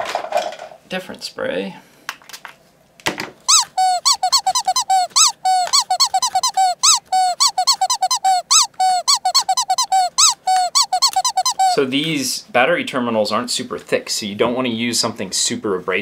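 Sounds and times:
cloth squeaking on plastic: 3.5 - 11.8.

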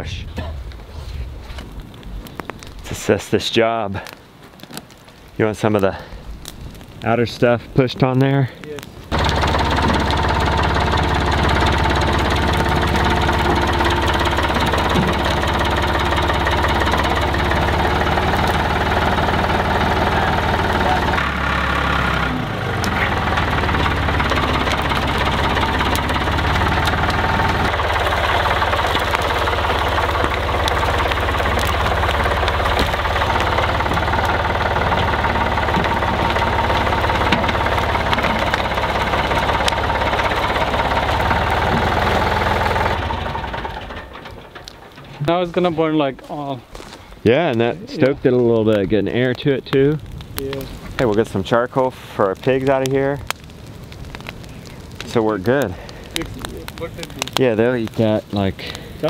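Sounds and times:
tractor diesel engine running: 9.1 - 46.5, 53.0 - 59.0.

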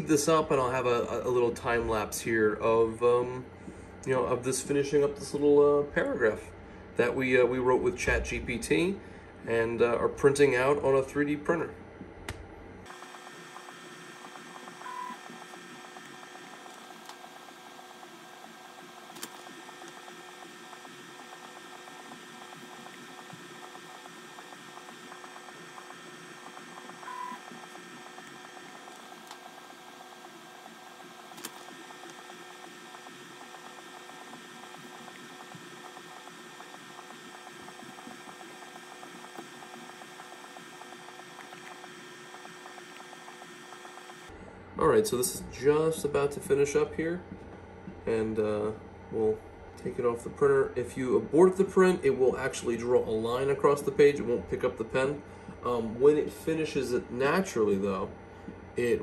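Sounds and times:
machine humming: 8.5 - 59.0.

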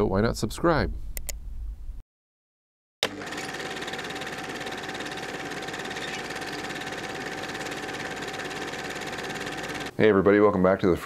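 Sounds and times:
film projector clattering: 3.0 - 9.9.

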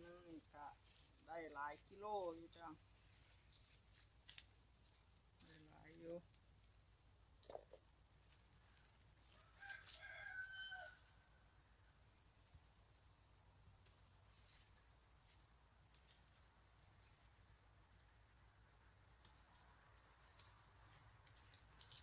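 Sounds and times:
distant rooster crowing: 9.3 - 11.4.

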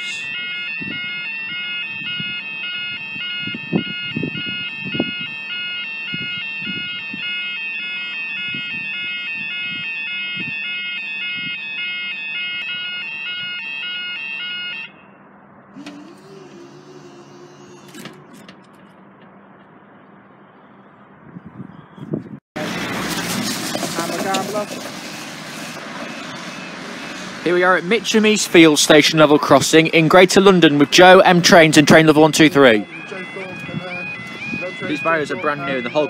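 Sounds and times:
level crossing two-tone alarm: 0.0 - 15.2, 30.2 - 36.0.

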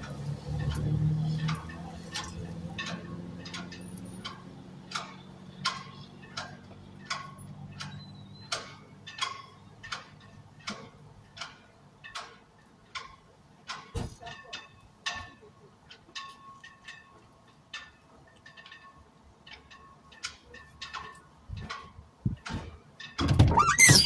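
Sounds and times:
turn signal ticking: 0.0 - 13.8.

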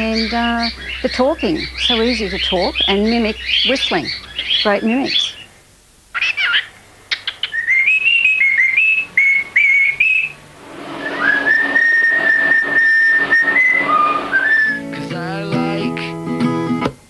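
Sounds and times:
cockatiels whistling tunes: 6.2 - 10.4, 11.0 - 15.3.

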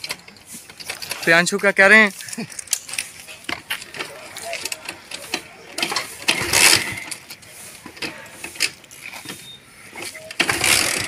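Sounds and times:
engine turning over: 4.6 - 7.2, 10.2 - 11.0
motorcycle kick-start ratchet: 4.6 - 7.2, 10.0 - 11.0.

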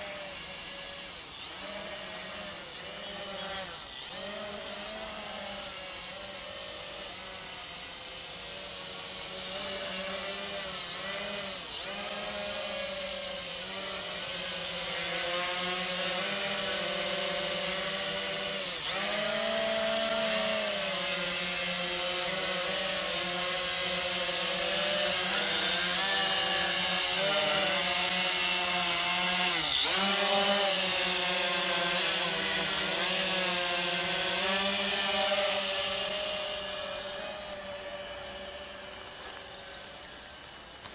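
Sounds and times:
drone propellers whining: 0.0 - 40.9.

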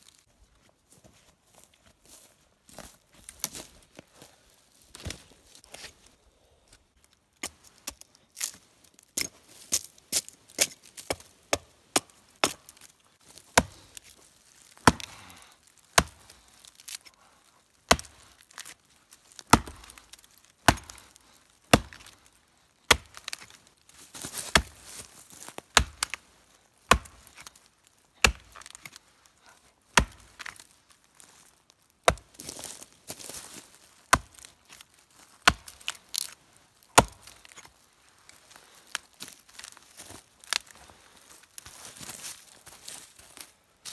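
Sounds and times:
hatchet chopping wood: 10.6 - 12.8, 13.5 - 13.8, 14.8 - 15.2, 15.9 - 17.1, 17.9 - 18.7, 19.4 - 22.2, 22.9 - 23.6, 24.5 - 24.8, 25.7 - 26.2, 26.8 - 27.6, 28.2 - 29.0, 29.9 - 30.6, 32.0 - 32.6, 34.1 - 34.5, 35.4 - 36.0, 36.9 - 37.7.

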